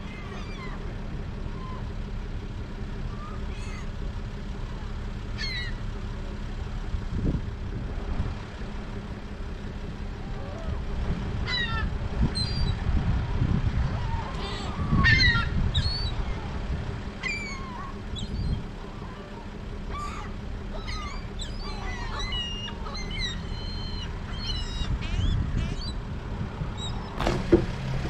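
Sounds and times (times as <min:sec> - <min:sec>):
seagulls calling: 0:00.0 - 0:06.4, 0:10.2 - 0:12.9, 0:13.8 - 0:26.1, 0:26.7 - 0:27.5
steady low rumble: 0:00.0 - 0:28.0.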